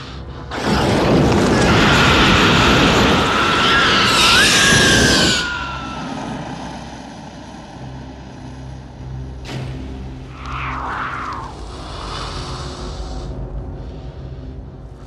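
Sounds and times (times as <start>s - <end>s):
low drone: 0.0s - 15.0s
loud jet engine roar: 0.5s - 8.7s, 10.3s - 13.2s
whistling tone: 3.6s - 6.9s.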